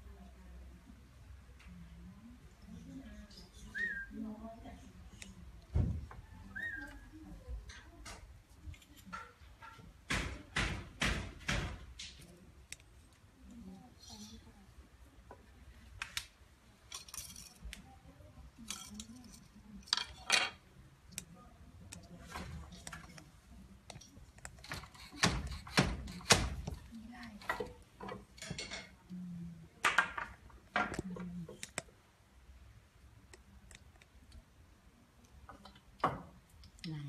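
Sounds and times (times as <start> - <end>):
wooden loom parts clacking: 16.8 - 17.8, 23.9 - 29.0.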